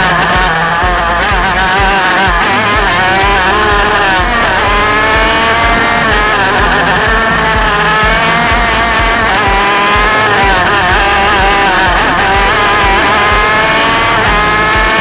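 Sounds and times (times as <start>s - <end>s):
go-kart engine accelerating: 0.0s - 15.0s.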